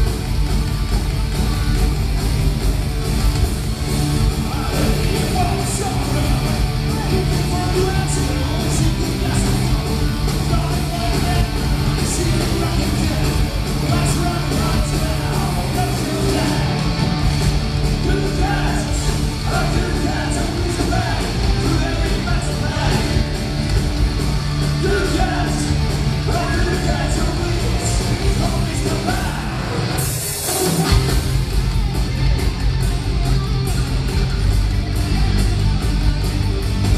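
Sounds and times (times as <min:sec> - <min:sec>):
bass guitar: 0:00.0 - 0:36.9
distorted electric guitars: 0:00.0 - 0:36.9
drums with cymbal crashes: 0:00.0 - 0:36.9.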